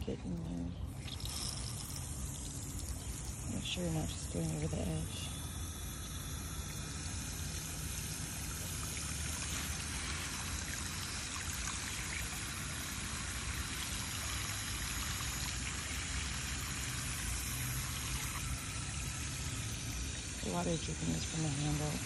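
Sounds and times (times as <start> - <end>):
hose water pouring into soil: 0.0 - 22.0.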